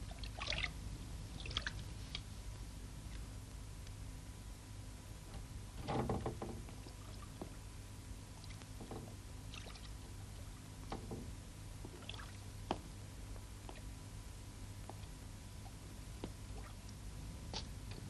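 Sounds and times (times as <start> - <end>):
bath water sloshing and splashing: 0.0 - 0.8, 1.4 - 2.2, 9.5 - 10.0, 12.0 - 12.4
steady low hum: 0.0 - 18.0.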